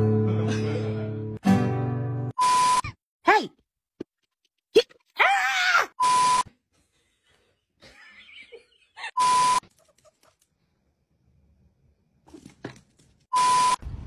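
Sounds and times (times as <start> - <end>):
beep tones with hiss: 13.4 - 13.8.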